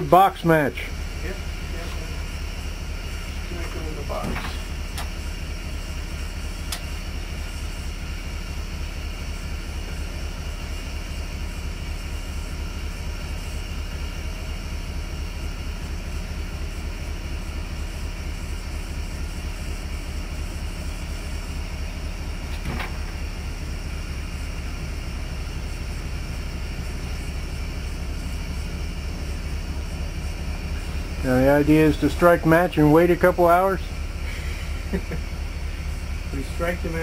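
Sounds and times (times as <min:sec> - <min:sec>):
pulsing mechanical engine drone: 0:00.0 - 0:37.0.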